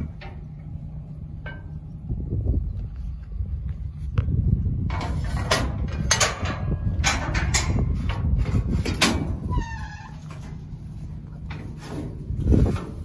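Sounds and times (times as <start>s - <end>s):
steady low rumble: 0.0s - 13.0s
metal gate latch clanking: 1.4s - 1.8s, 4.9s - 10.6s.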